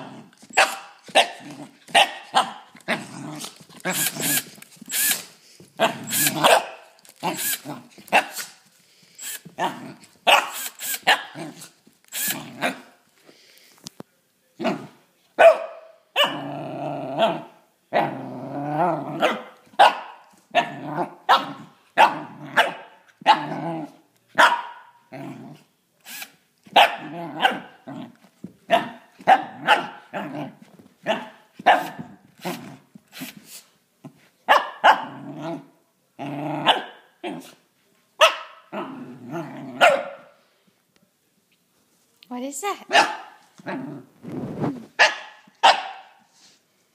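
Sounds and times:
puppy growling: 0.0s - 0.4s, 2.8s - 4.4s, 16.3s - 19.3s, 25.1s - 25.7s, 35.0s - 37.6s, 38.7s - 39.8s, 43.6s - 44.7s
puppy barking: 0.6s - 2.7s, 5.8s - 6.8s, 10.3s - 11.4s, 15.4s - 16.4s, 19.2s - 23.6s, 24.4s - 24.9s, 26.7s - 27.8s, 28.7s - 30.2s, 31.1s - 32.0s, 34.5s - 35.2s, 36.6s - 37.0s, 38.2s - 38.7s, 39.8s - 40.3s, 42.9s - 43.4s, 45.0s - 46.2s.

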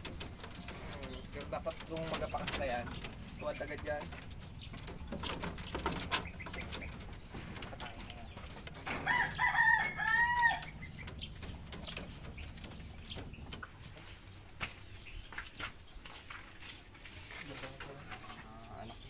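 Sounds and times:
rabbits scuffling on straw: 0.0s - 19.0s
rooster crowing: 8.9s - 10.9s.

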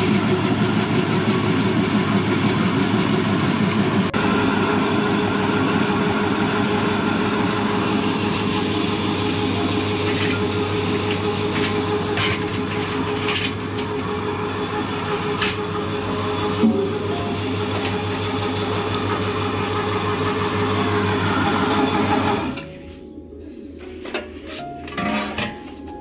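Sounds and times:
machine motor humming: 0.0s - 22.7s
sharp knocks and rustles: 11.0s - 14.0s.

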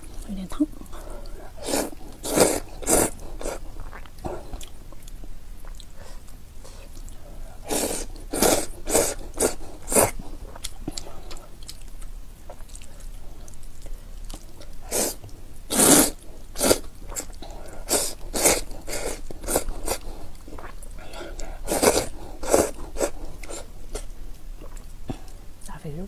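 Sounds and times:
chewing: 0.0s - 25.4s
slurping noodles: 1.4s - 4.7s, 7.6s - 11.2s, 14.8s - 24.8s.

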